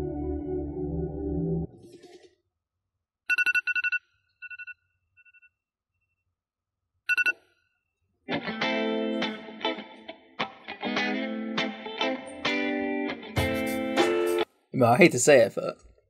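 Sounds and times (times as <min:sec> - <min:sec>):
music: 0:00.0 - 0:01.8, 0:08.3 - 0:14.5
phone alarm beeping: 0:03.3 - 0:05.6, 0:07.1 - 0:07.5.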